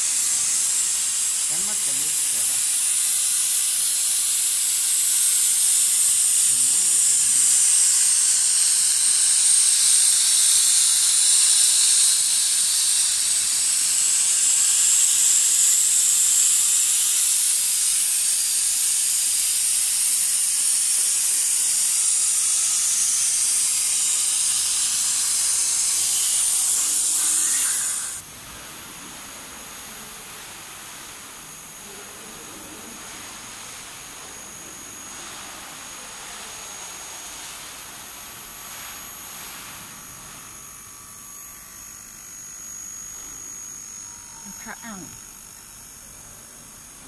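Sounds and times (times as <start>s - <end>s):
compressed air hissing from nozzle: 0.0s - 28.2s, 33.0s - 40.5s.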